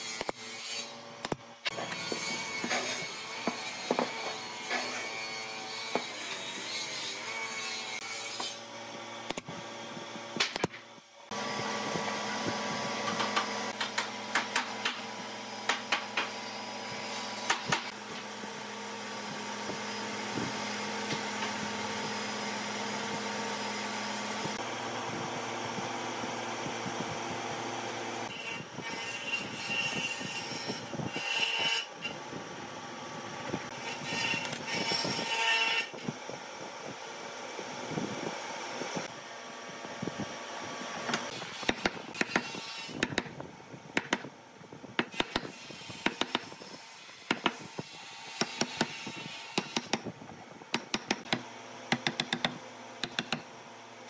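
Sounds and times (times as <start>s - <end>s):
power tool machine hum: 11.0s - 28.3s.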